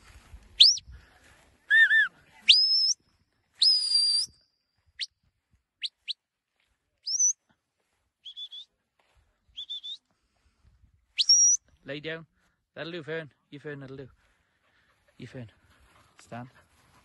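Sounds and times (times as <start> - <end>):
shepherd's whistle commands: 0.6 - 0.8, 1.7 - 3.0, 3.6 - 4.4, 7.0 - 7.4, 8.2 - 8.7, 9.6 - 10.0, 11.2 - 11.7.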